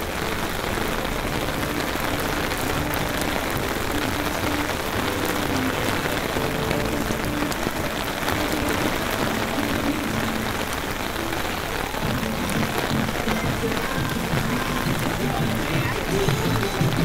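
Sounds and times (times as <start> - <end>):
rain hitting the ground: 0.0 - 17.0.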